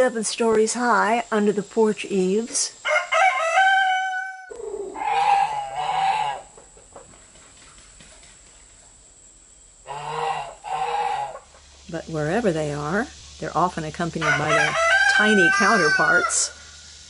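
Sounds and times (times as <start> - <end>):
high rising goose call: 3.3 - 6.5, 9.9 - 11.5
geese honking: 3.4 - 6.6, 9.8 - 11.7.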